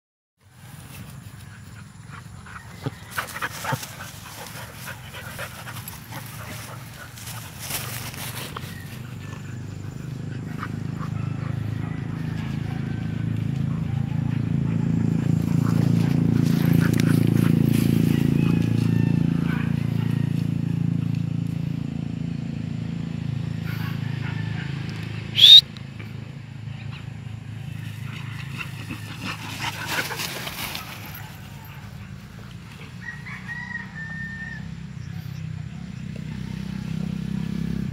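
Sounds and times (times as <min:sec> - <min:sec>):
motor vehicle engine drone: 0:00.4 - 0:37.9
dogs playing rough: 0:00.7 - 0:20.6, 0:26.9 - 0:33.0
short high-pitched rising cry: 0:25.4 - 0:25.6.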